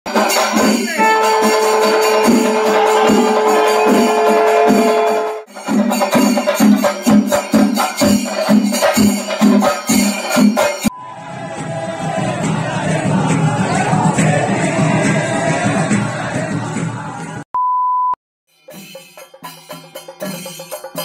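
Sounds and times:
rhythmic percussion beat: 0.1 - 17.4, 18.5 - 21.0
long held tone: 10.9 - 11.4.

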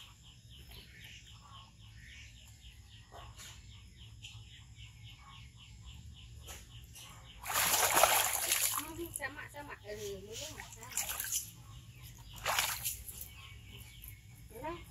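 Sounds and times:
bird chirping: 0.0 - 14.9
loud water splash: 7.5 - 8.8.

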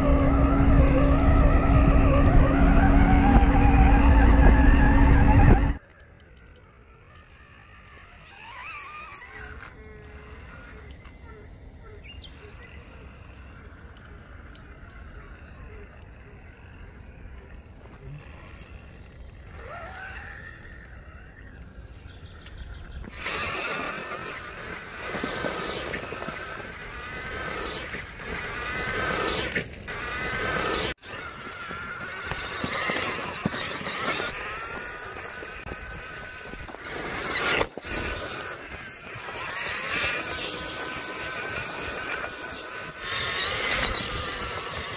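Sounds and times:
electric motor and gears whining: 0.0 - 44.9.

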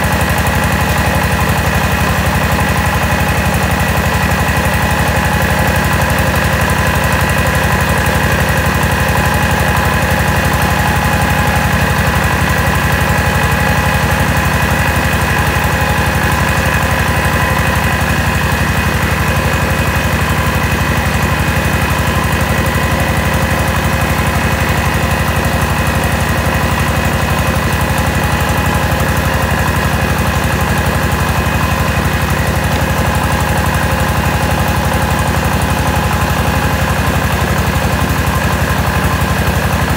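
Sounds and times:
engine rapid beat: 0.0 - 39.9.

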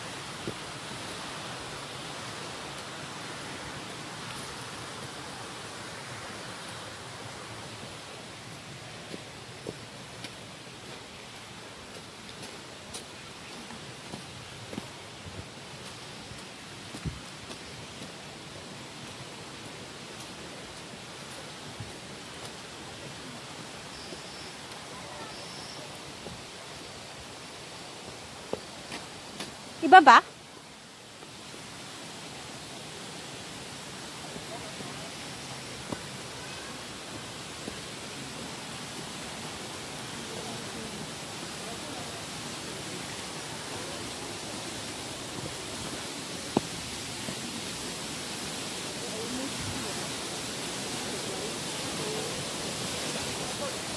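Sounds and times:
stream rushing: 0.0 - 53.9
footsteps on rocky trail: 8.5 - 19.1, 28.4 - 29.6, 35.8 - 36.2, 37.1 - 38.0, 44.8 - 47.4.

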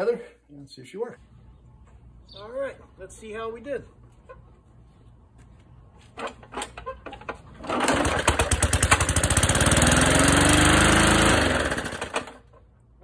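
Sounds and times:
lawnmower engine running: 6.2 - 12.8.

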